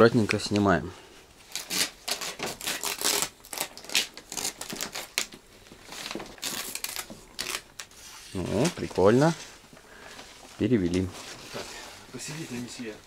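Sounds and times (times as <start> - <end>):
paper tape ripping off: 1.5 - 5.3, 6.0 - 8.7.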